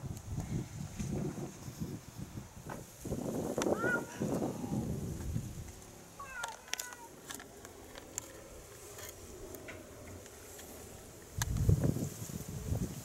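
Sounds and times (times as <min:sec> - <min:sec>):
faint ticks and clicks: 0:05.2 - 0:11.8.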